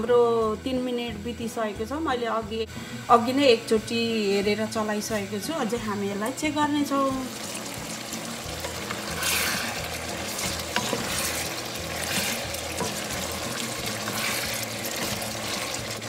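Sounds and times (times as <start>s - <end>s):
chicken sizzling in a pan: 3.0s - 16.0s
wooden spatula stirring: 7.4s - 16.0s.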